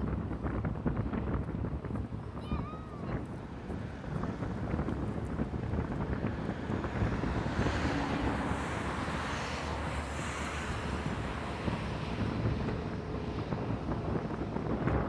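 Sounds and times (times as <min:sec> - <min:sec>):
distant jet engines rumbling: 0:00.0 - 0:15.0
wind buffeting microphone: 0:00.0 - 0:15.0.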